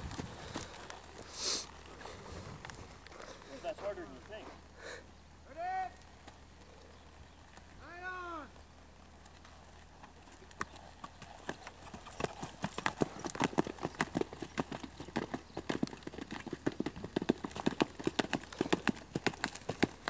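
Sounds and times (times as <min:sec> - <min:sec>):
horse hooves clip-clopping: 0:00.0 - 0:20.0.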